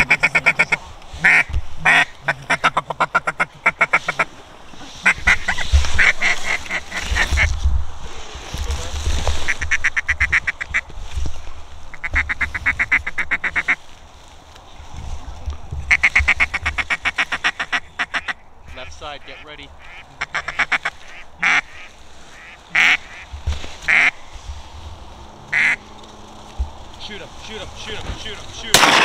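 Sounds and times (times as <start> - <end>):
duck call quacks: 0.0 - 4.3, 5.0 - 7.5, 15.9 - 18.4, 19.2 - 23.2, 23.9 - 24.1, 25.5 - 25.8.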